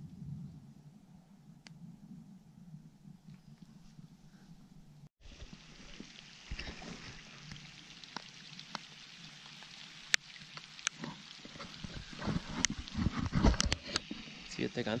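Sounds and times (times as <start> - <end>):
light rain on water: 5.2 - 15.0
raindrop taps on rocks: 5.4 - 8.9.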